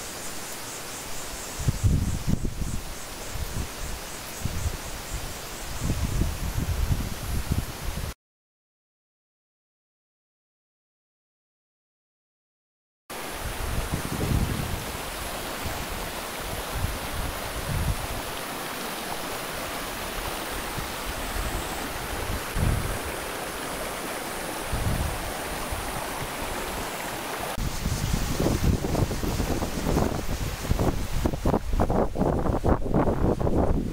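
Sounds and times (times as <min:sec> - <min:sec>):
wind on microphone: 0:01.5 - 0:08.2, 0:13.3 - 0:18.4, 0:19.5 - 0:33.9
stream rushing over rocks: 0:13.1 - 0:33.8.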